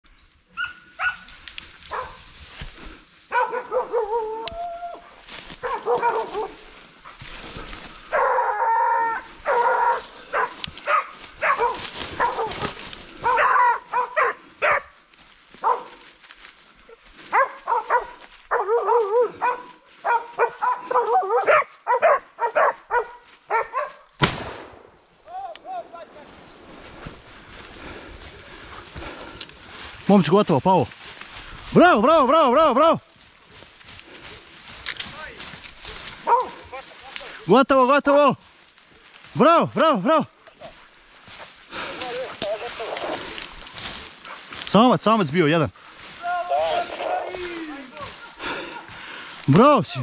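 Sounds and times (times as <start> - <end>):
hunting dogs baying: 0.5 - 2.3, 3.2 - 15.0, 15.6 - 16.2, 16.8 - 24.1, 35.8 - 36.9, 41.7 - 44.6.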